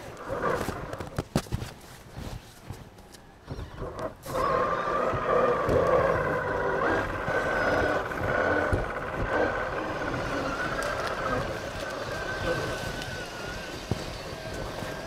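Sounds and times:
toy car motor whining: 0:03.5 - 0:15.0.

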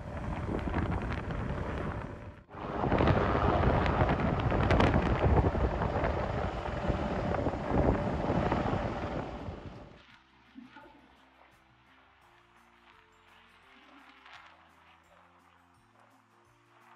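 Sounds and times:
jet engine noise: 0:00.0 - 0:10.0
wind buffeting microphone: 0:00.0 - 0:10.0.

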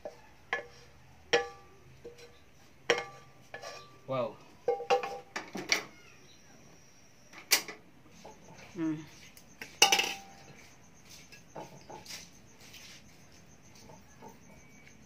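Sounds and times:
metal and ceramic dishes clanking: 0:00.0 - 0:04.0, 0:04.7 - 0:05.9, 0:09.8 - 0:10.5.

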